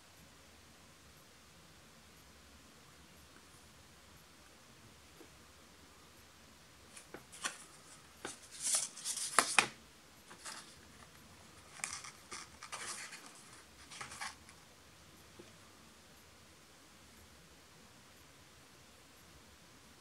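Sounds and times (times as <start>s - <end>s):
phone and cardboard box handling: 7.0s - 10.8s, 11.7s - 14.4s.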